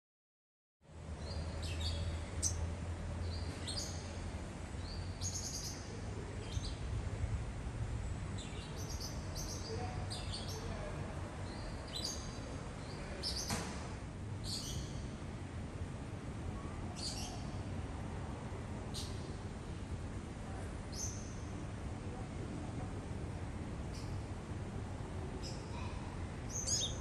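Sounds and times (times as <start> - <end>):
bird chirping: 26.5 - 27.0.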